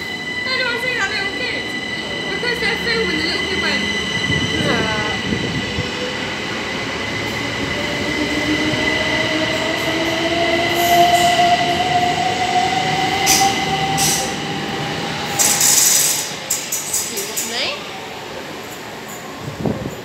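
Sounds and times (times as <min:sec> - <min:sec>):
train wheels clacking: 0:13.0 - 0:17.8.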